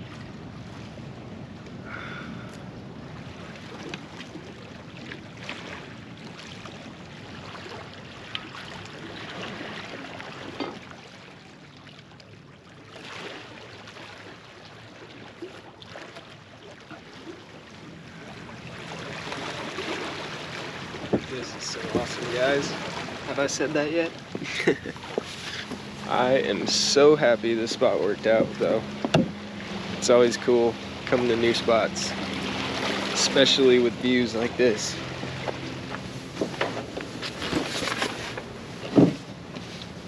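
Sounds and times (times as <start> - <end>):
waves washing against rocky shore: 18.2 - 39.4
wind on microphone: 20.9 - 23.2, 24.2 - 25.9.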